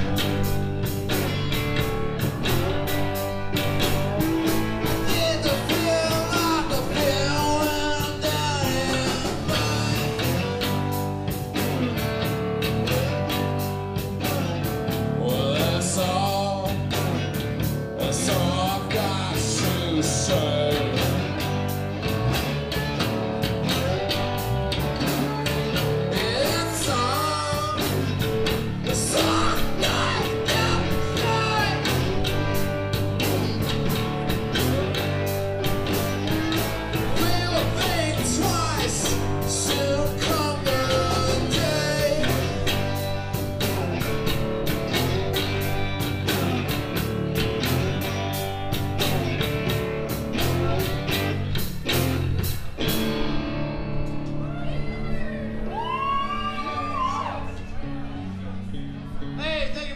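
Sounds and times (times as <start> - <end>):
drum kit: 0.0 - 54.6
electric bass: 0.0 - 59.9
electric guitar: 0.0 - 59.9
man singing into a microphone: 4.8 - 10.6, 15.1 - 17.0, 18.0 - 21.3, 26.1 - 28.2, 28.8 - 32.3, 37.0 - 43.0.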